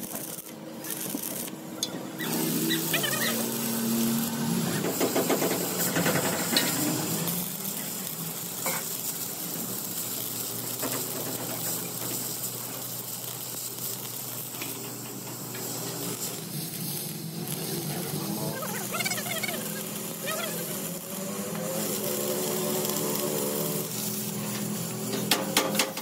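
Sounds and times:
welding arc crackling: 0.0 - 26.0.

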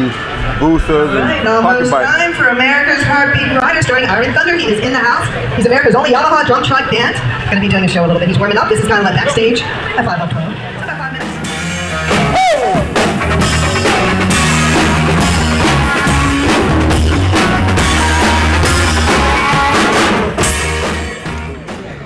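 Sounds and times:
bass line: 0.0 - 3.8, 10.8 - 21.7
guitar: 0.0 - 22.0
drum kit: 10.9 - 22.0.

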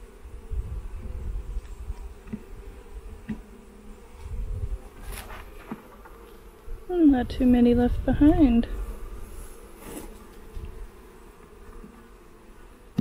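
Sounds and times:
bees buzzing: 0.0 - 13.0
wooden hive frames knocking: 3.2 - 3.5.

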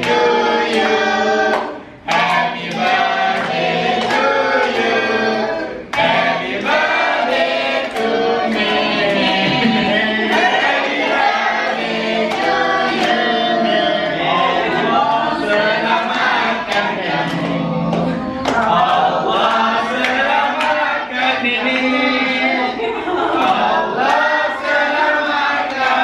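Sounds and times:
people singing a birthday tune: 0.0 - 26.0
hands clapping: 1.5 - 4.9, 15.5 - 20.8.

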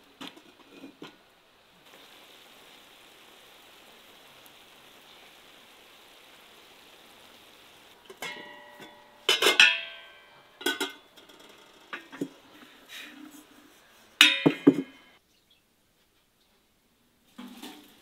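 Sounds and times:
meat sizzling in fat: 0.0 - 10.1
metal cookware clinking and clanging: 8.0 - 12.5, 14.2 - 15.1.

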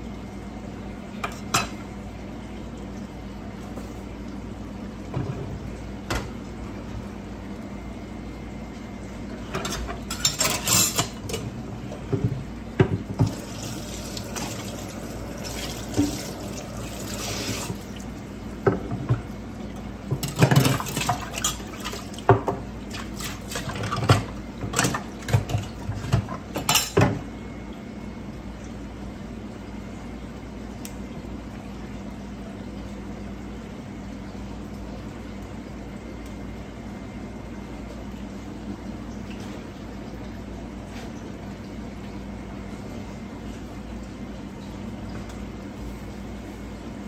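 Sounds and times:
kitchen utensils clattering: 9.6 - 11.4.

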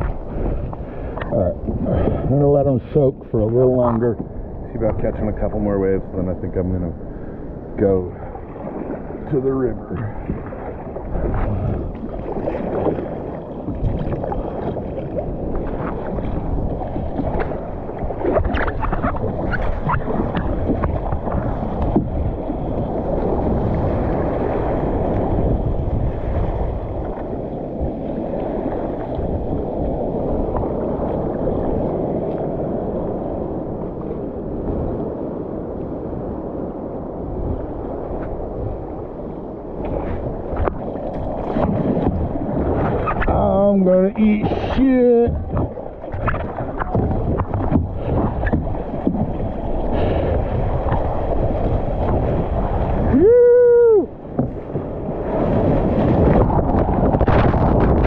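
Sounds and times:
water splashing around kayak: 0.0 - 58.0.

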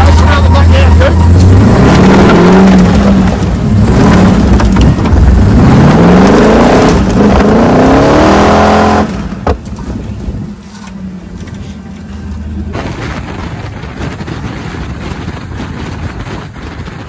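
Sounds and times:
engine revving hard: 0.5 - 9.3.

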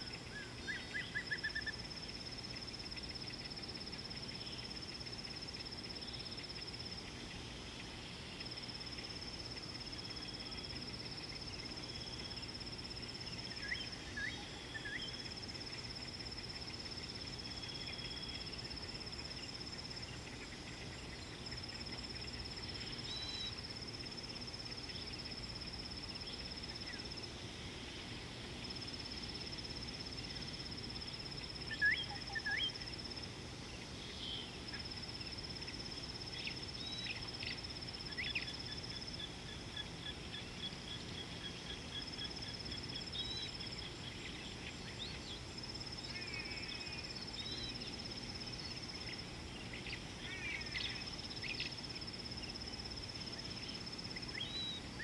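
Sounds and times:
background hiss: 0.0 - 55.0
bird chirping: 13.2 - 27.3, 30.2 - 33.1, 33.7 - 51.8.

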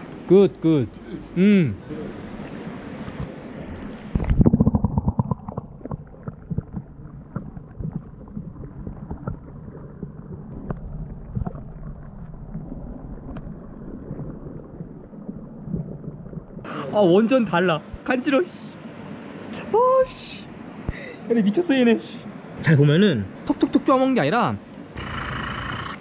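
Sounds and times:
muffled underwater wash: 1.8 - 21.1
water splashing: 2.1 - 16.7.

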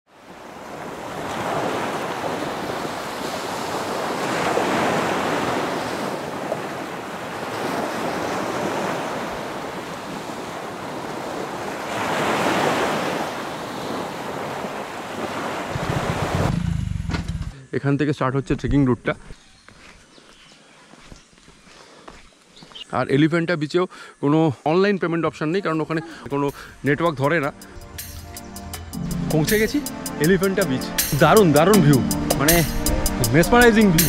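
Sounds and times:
sea surf washing onto beach: 0.1 - 16.5.

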